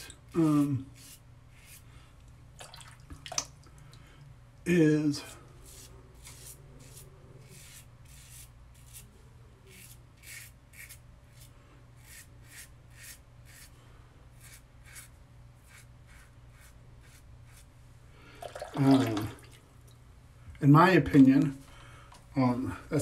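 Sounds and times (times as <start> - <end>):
razor scraping stubble: 5.6 - 9.1, 9.7 - 13.8, 14.4 - 17.7.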